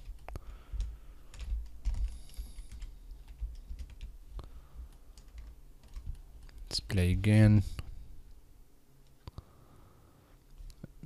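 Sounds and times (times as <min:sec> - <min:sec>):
computer keyboard keys clicking: 0:00.0 - 0:04.2, 0:04.8 - 0:06.6.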